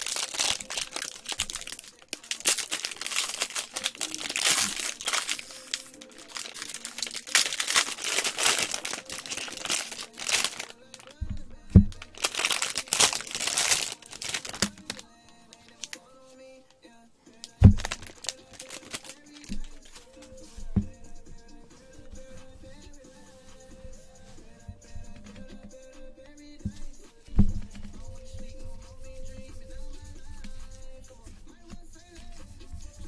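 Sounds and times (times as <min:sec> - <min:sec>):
foil wrapper crinkling and tearing: 0:00.0 - 0:11.2, 0:11.9 - 0:16.1, 0:17.4 - 0:20.1.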